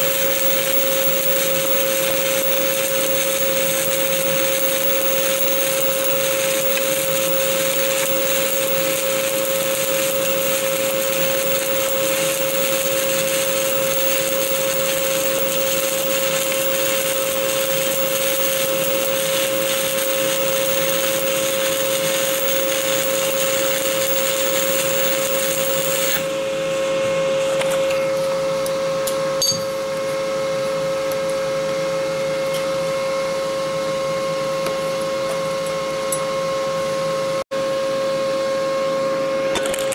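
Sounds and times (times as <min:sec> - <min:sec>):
welding arc crackling hiss: 0:00.0 - 0:26.4
steady hum: 0:00.0 - 0:31.1.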